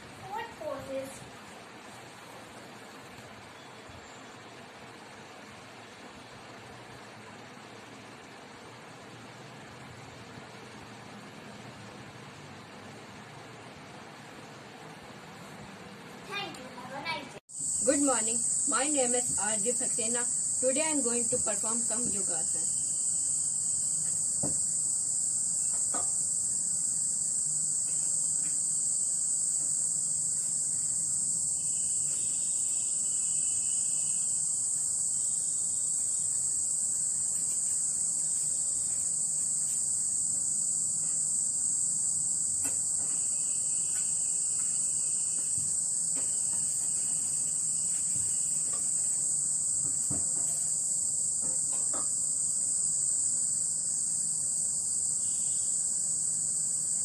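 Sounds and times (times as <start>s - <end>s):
high-pitched insect chorus: 17.5s - 57.0s.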